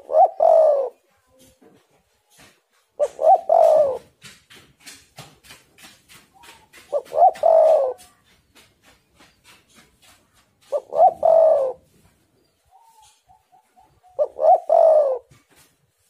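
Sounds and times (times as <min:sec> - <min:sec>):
dove cooing: 0:00.0 - 0:01.1, 0:03.0 - 0:04.2, 0:06.4 - 0:08.3, 0:10.6 - 0:15.4.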